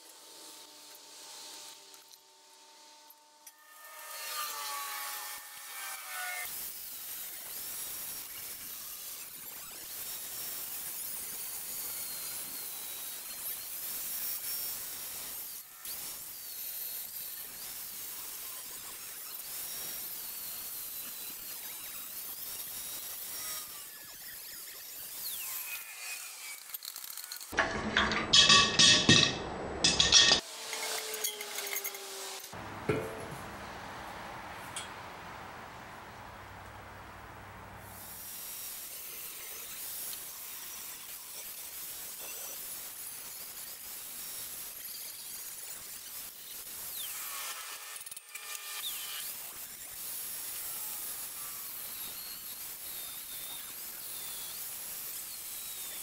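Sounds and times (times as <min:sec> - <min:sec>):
angle grinder cutting steel: 0:00.2 - 0:33.4, 0:38.0 - 0:56.0.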